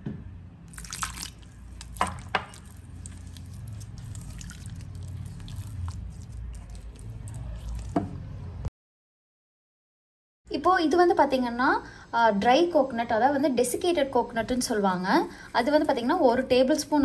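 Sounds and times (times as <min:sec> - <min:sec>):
water pouring: 0:00.7 - 0:08.0
spatula squishing batter: 0:00.7 - 0:08.3.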